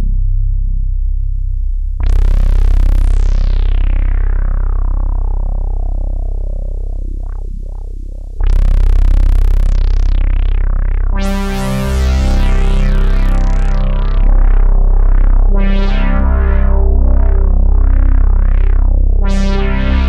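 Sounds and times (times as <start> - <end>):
synthesizer low held notes: 0.0 - 20.0.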